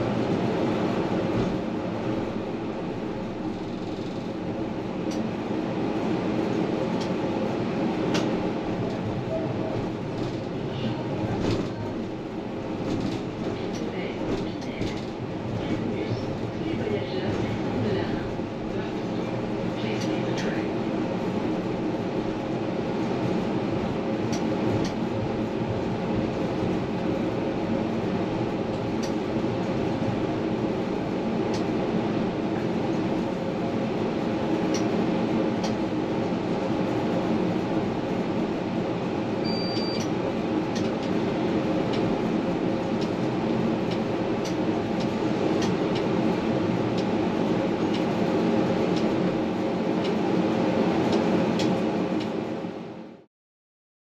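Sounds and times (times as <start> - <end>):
tram motor and wheel rumble: 0.0 - 53.3
short high beep: 39.4 - 40.0.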